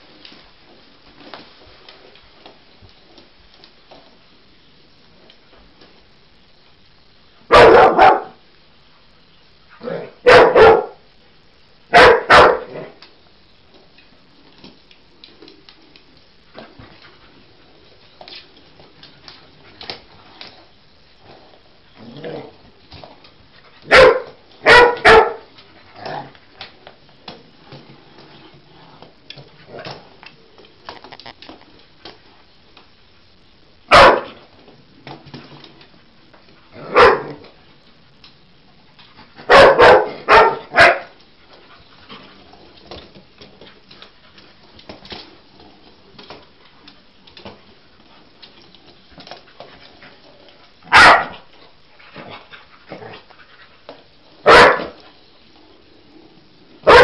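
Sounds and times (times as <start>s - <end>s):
dog barking: 7.5s - 8.4s, 9.9s - 11.0s, 11.9s - 12.9s, 23.9s - 25.4s, 33.9s - 34.3s, 36.9s - 37.4s, 39.5s - 41.1s, 50.9s - 51.4s, 54.4s - 55.0s.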